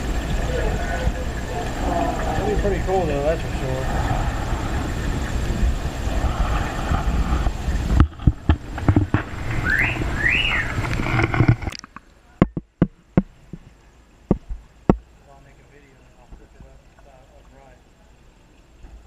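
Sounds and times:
aquarium low rumble: 0.0s - 19.0s
sharp clicks and knocks: 7.9s - 9.5s, 10.8s - 13.7s, 14.3s - 15.1s
squeaky rising-and-falling glides: 9.4s - 11.2s.

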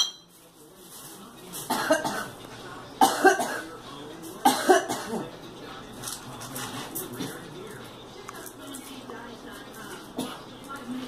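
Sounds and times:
woman coughing: 1.7s - 2.4s, 3.0s - 3.7s, 4.4s - 5.3s.

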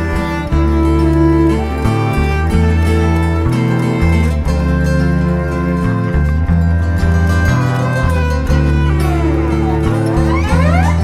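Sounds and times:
background music with bass line: 0.0s - 11.0s
sweeping tone: 7.2s - 11.0s.

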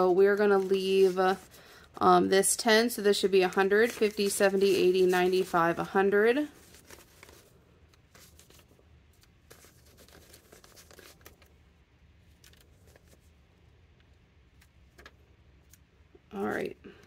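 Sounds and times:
paper banknotes rustling: 0.0s - 13.4s.

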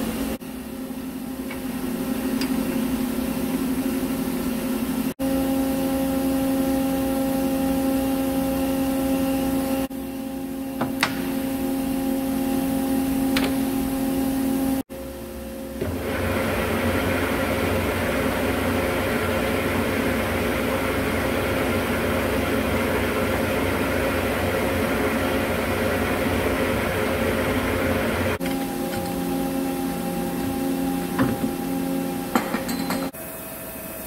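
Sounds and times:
metal lathe humming: 15.8s - 33.1s.

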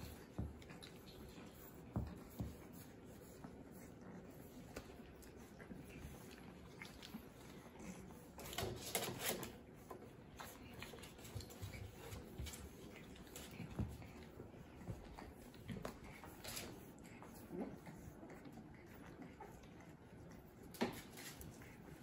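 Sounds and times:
puppy paws pattering and scuffling: 0.0s - 22.0s.

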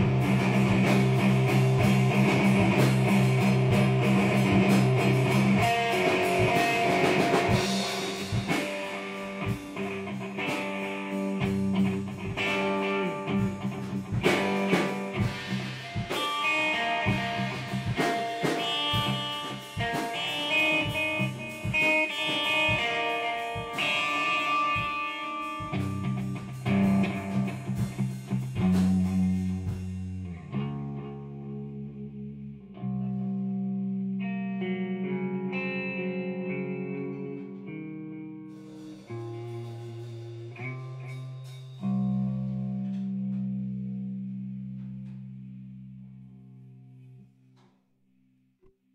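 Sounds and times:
drum kit: 0.0s - 30.9s, 38.5s - 45.4s
electric guitar: 0.0s - 47.2s.

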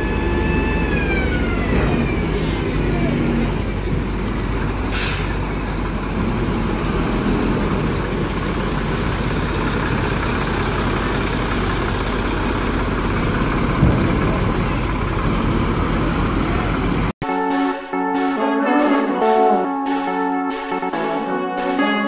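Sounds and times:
bus diesel engine idling: 0.0s - 17.2s
air hiss: 4.8s - 5.4s.

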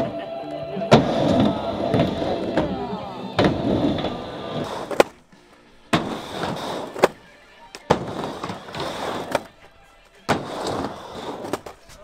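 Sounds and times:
skateboard wheels rolling on wood: 0.8s - 12.0s
skateboard clacking on ramp: 0.9s - 5.2s, 6.0s - 7.2s, 7.8s - 9.7s.

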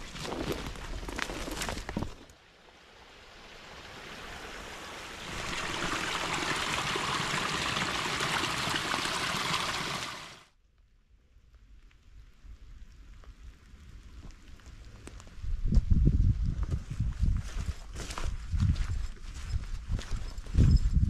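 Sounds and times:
brook trickling: 2.6s - 10.5s.

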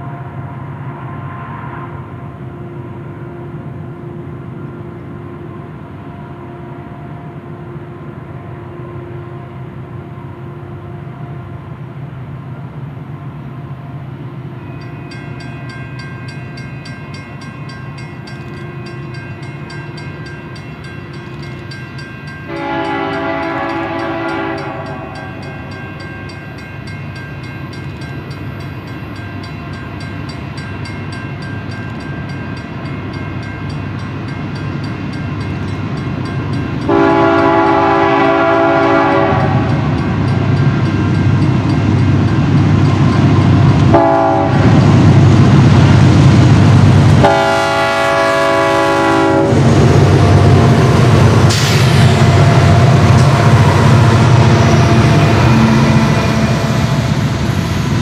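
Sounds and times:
diesel locomotive engines rumbling: 0.0s - 58.0s
locomotive air horn blasts: 22.5s - 25.4s, 36.9s - 39.9s, 43.9s - 44.8s, 47.2s - 49.7s.

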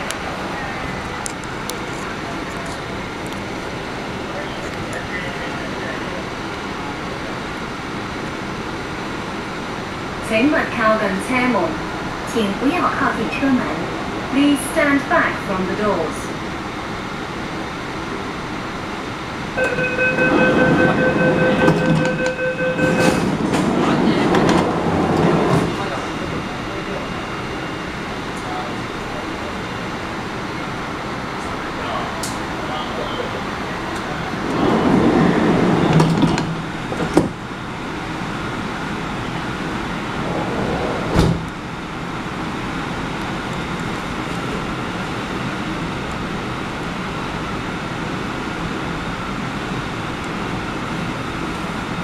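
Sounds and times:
train rumble: 0.0s - 52.0s
electronic door warning tone: 19.6s - 23.3s
train door sliding shut: 19.6s - 26.0s, 34.5s - 37.4s, 40.2s - 41.6s.

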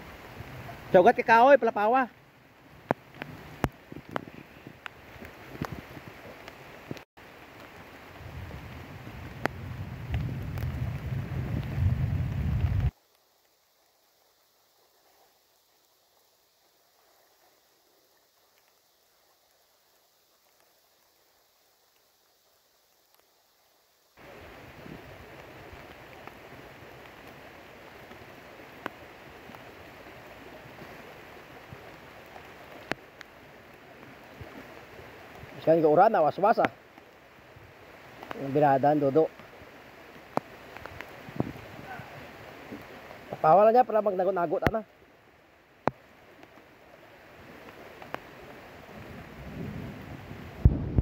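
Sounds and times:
floodwater rushing: 0.0s - 51.0s
stream flowing: 0.0s - 51.0s
wind buffeting microphone: 8.2s - 12.9s, 40.9s - 42.2s, 48.9s - 51.0s
faint sharp clicks: 23.0s - 23.3s, 31.6s - 34.6s, 38.2s - 38.4s, 40.1s - 41.2s, 45.8s - 46.7s, 47.6s - 48.3s.

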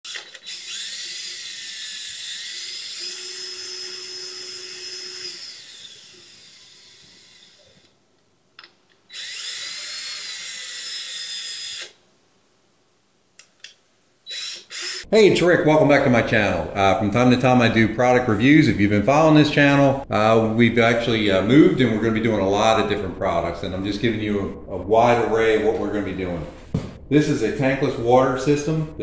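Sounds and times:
small motor whirring whine: 0.1s - 7.9s.

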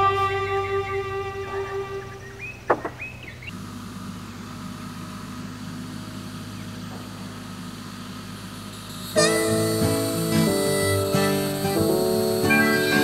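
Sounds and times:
guitar music: 0.0s - 2.4s, 9.2s - 13.0s
distant tractor diesel engine: 0.0s - 13.0s.

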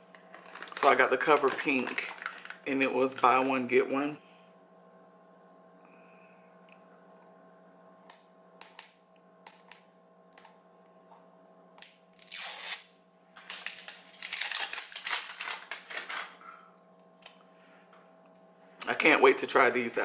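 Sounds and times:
faint electrical hum: 0.0s - 20.0s
packaging crinkling: 0.2s - 2.7s, 13.4s - 16.4s.

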